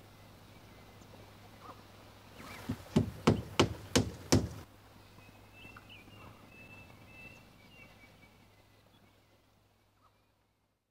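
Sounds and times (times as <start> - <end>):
woodpecker tapping on bark: 2.7 - 4.6.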